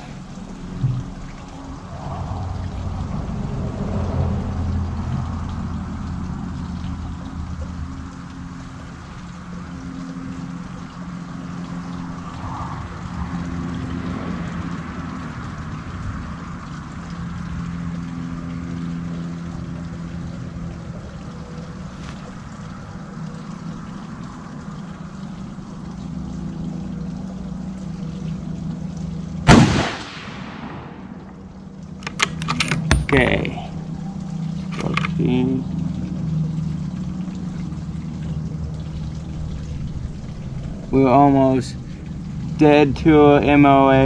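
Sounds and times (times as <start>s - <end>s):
low background hum: 0.0s - 44.0s
rifle shot with echo: 29.5s - 31.2s.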